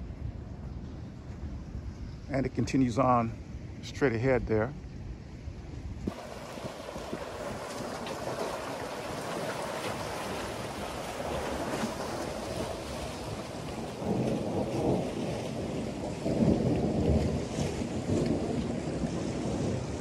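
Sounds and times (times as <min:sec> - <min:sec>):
wind buffeting microphone: 0:00.0 - 0:20.0
waves washing against boulders: 0:06.1 - 0:20.0.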